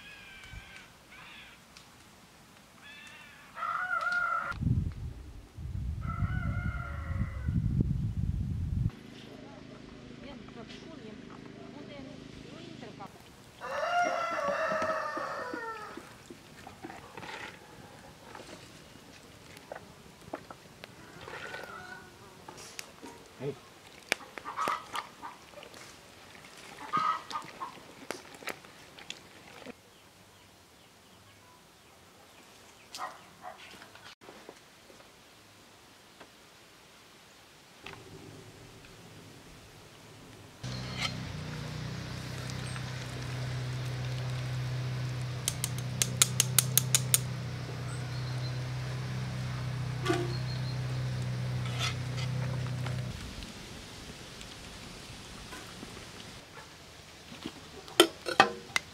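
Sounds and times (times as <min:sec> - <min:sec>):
sharp clicks and knocks: 0:45.4 - 0:47.3.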